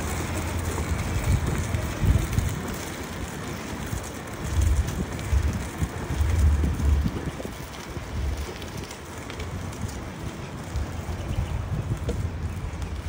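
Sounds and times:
steady outdoor hiss: 0.0 - 13.0
wind buffeting microphone: 0.0 - 13.0.

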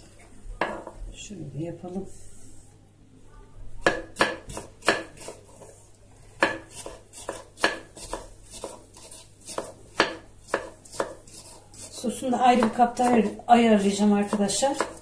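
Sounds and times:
knife chopping on wooden board: 3.8 - 5.7, 6.4 - 15.0.

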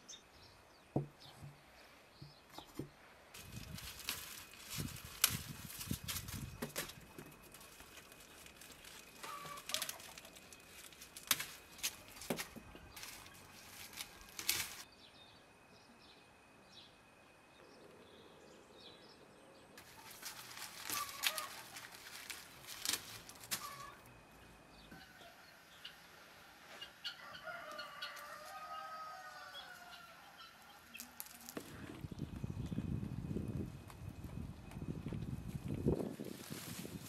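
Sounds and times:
dry onion skins rustling: 3.4 - 14.9, 19.8 - 24.1, 30.8 - 32.2, 35.9 - 37.0.

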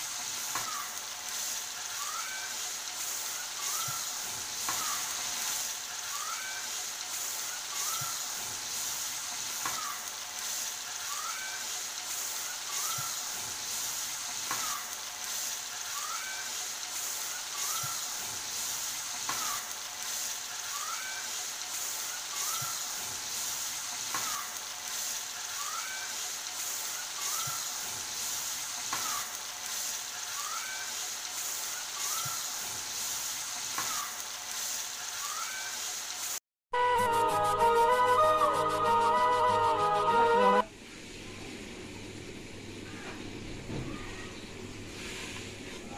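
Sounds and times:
fish frying in oil: 0.0 - 36.4.

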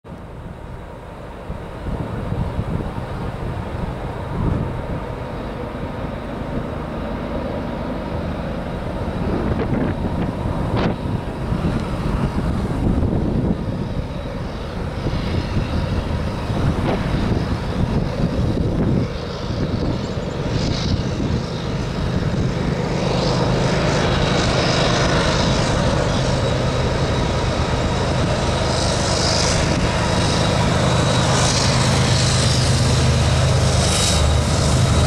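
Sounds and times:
wind buffeting microphone: 0.1 - 35.0.

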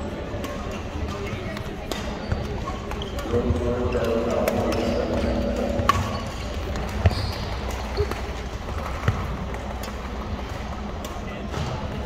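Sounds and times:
murmur of background chatter: 0.0 - 12.0.

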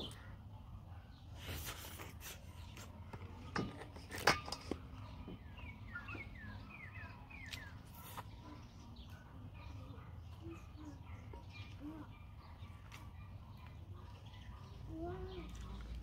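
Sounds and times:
bird chirping: 0.0 - 1.3, 4.9 - 16.0.

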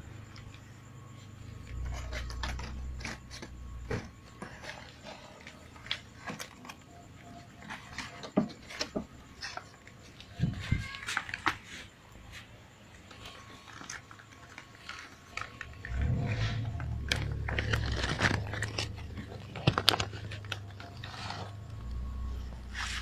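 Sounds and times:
plastic bag crinkling: 13.1 - 21.8
low rumble: 15.8 - 23.0.

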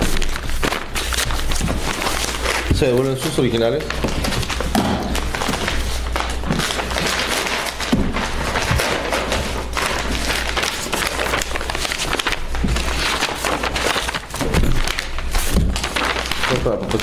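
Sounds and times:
paper rustling: 0.0 - 17.0
folders thumping on table: 3.9 - 5.8, 7.8 - 9.6, 14.3 - 15.9.

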